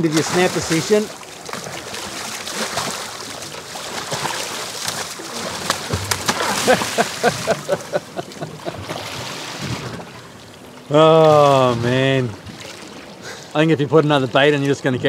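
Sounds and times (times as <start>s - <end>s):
water splashing against boat: 0.0s - 15.0s
shark thrashing at surface: 3.9s - 7.7s.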